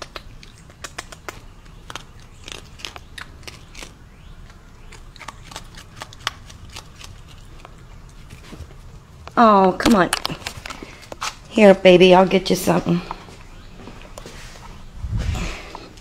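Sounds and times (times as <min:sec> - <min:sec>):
raccoon crunching dry kibble: 0:00.0 - 0:11.8.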